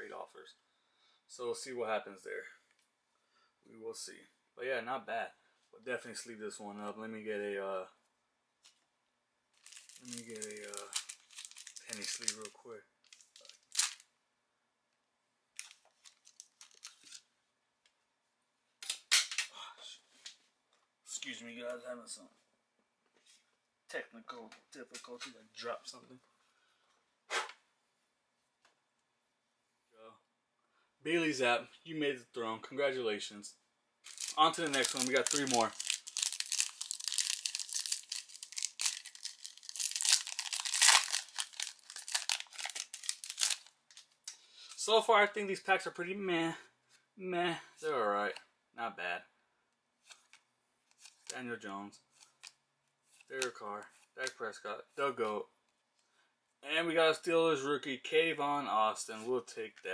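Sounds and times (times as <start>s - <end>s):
plastic sleeve rustling: 9.5s - 14.1s, 15.6s - 17.3s, 34.0s - 44.9s, 50.0s - 51.4s
plastic wrapper crinkling: 9.5s - 14.1s, 15.6s - 17.3s, 34.0s - 44.4s, 50.1s - 51.4s, 52.2s - 52.6s.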